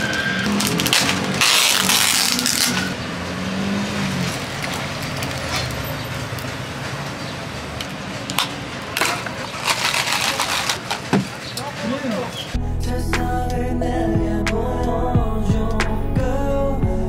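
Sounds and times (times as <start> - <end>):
low traffic hum: 0.0 - 17.0
ice rattling in plastic cup: 9.0 - 11.2.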